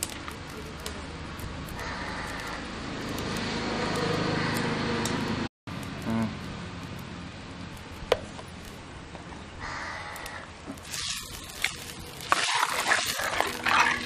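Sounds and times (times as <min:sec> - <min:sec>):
ladle stirring thick curry: 0:10.8 - 0:14.0
liquid sloshing: 0:10.8 - 0:14.0.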